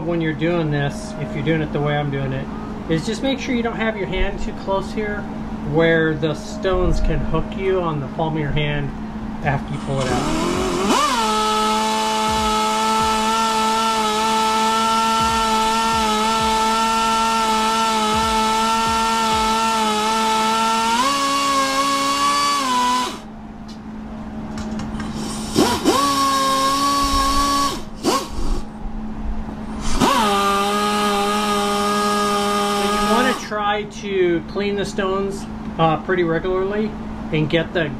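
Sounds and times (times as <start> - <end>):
electric drill whining: 9.8 - 23.3, 25.0 - 28.7, 29.8 - 33.5.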